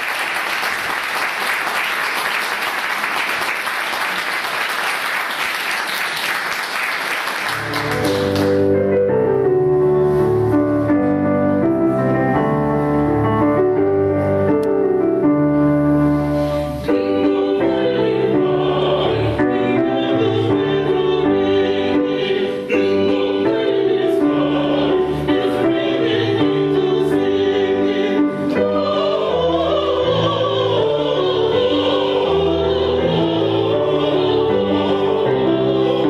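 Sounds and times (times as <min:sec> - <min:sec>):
audience applause: 0:00.0 - 0:08.7
digital piano chords: 0:07.5 - 0:36.0
vocal quartet singing: 0:16.3 - 0:36.0.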